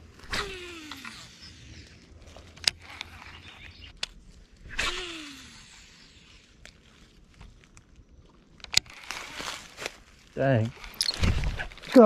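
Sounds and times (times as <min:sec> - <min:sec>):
sharp reel clicks: 0:00.2 - 0:02.0, 0:02.6 - 0:06.7
fishing reel spool whirring: 0:00.2 - 0:04.0, 0:04.6 - 0:07.3.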